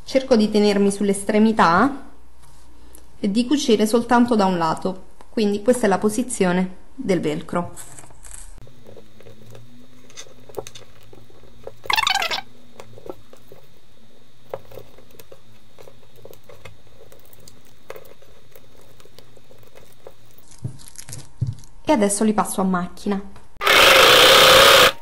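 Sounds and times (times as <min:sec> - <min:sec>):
rasping rustle: 0:08.6 - 0:21.3.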